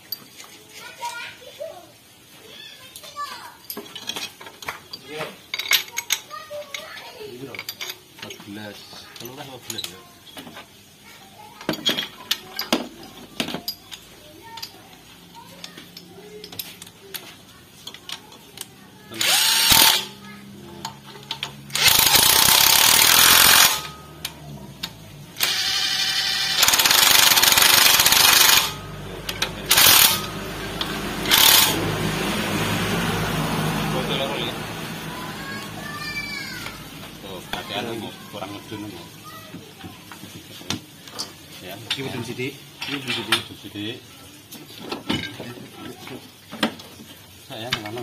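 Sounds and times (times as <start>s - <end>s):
air impact wrench bursts: 19.1s - 20.2s, 21.7s - 24.0s, 25.4s - 32.2s.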